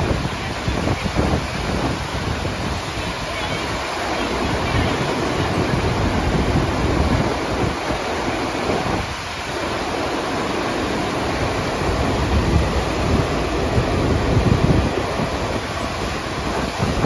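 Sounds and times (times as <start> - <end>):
rushing water: 0.0 - 17.0
wind rumbling on microphone: 0.0 - 17.0.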